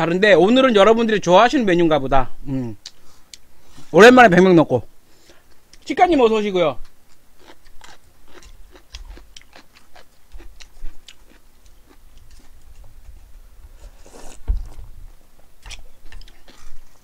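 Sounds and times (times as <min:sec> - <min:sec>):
close chewing with wet clicks: 0:07.1 - 0:13.2, 0:15.5 - 0:17.0
slurping noodles: 0:13.8 - 0:14.5.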